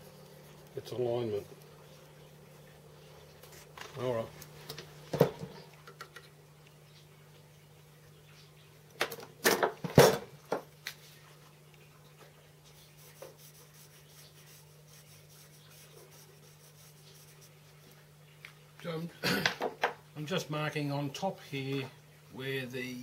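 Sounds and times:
steady low hum: 0.0 - 23.0
marker scratching on metal: 12.8 - 17.6.

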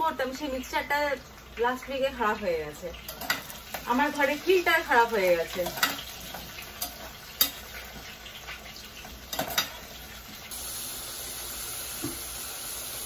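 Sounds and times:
potatoes sizzling in oil: 0.0 - 13.0
metal spoon clinking against pot: 5.5 - 6.1.

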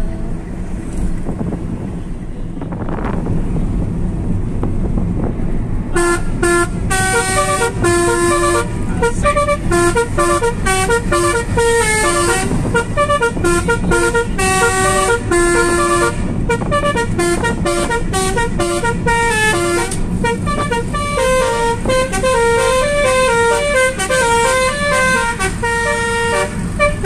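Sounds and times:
road noise inside a moving car: 0.0 - 27.0
musical car horns playing a melody: 5.9 - 27.0.

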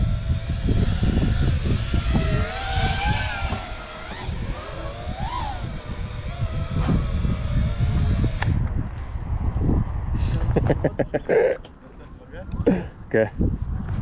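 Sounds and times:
drone motors whining: 0.0 - 9.2
wind rumble on microphone: 0.0 - 11.3, 12.2 - 14.0.

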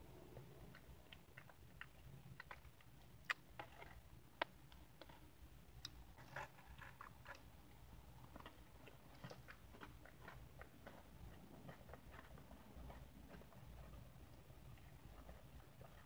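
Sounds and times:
person chewing: 0.7 - 7.5, 8.2 - 16.0.

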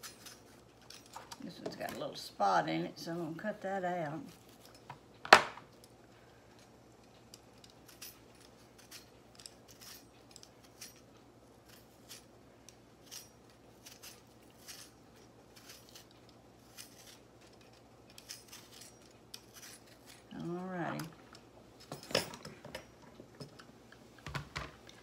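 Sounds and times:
peeler blade clicking and scraping: 11.7 - 21.1.

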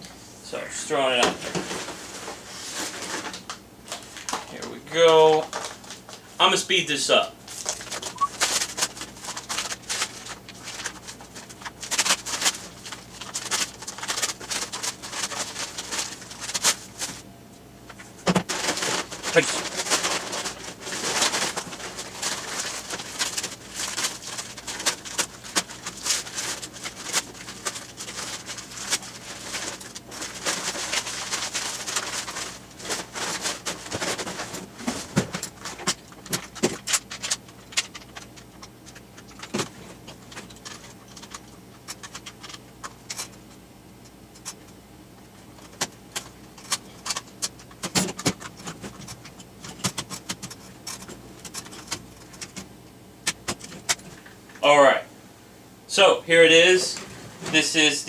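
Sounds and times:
packing paper rustling: 1.0 - 6.4, 7.4 - 17.3, 17.9 - 43.5, 45.4 - 54.4.

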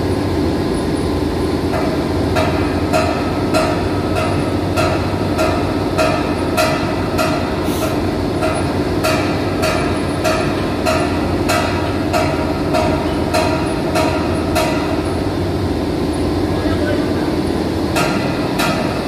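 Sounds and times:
hammer striking metal: 1.7 - 7.6, 8.4 - 15.2, 17.9 - 19.0.

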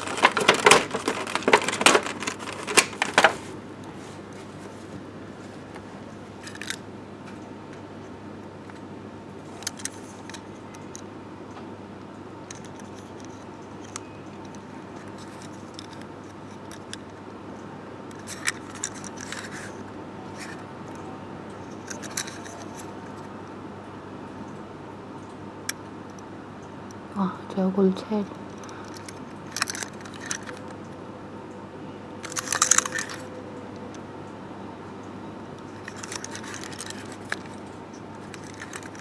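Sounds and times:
toy pieces clicking: 28.6 - 30.7, 32.2 - 33.3, 35.6 - 37.6, 38.2 - 39.0.

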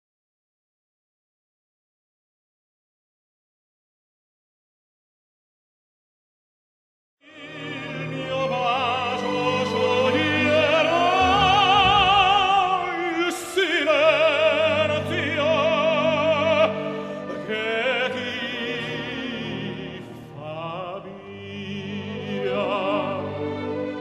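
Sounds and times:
operatic singing: 7.2 - 24.0
instrumental accompaniment: 7.4 - 20.4.

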